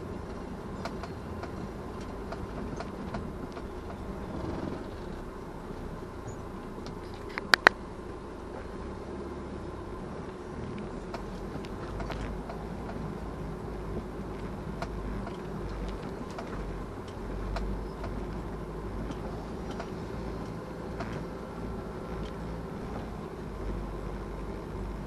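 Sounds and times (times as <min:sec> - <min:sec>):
car engine and tyre rumble: 0:00.0 - 0:25.0
short sharp clicks: 0:07.2 - 0:07.8.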